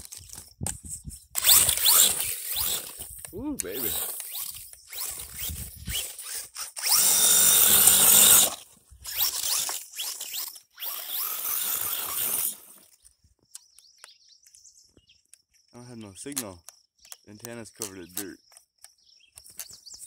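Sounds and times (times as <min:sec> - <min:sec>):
electric motor whining: 0:01.4 - 0:12.9.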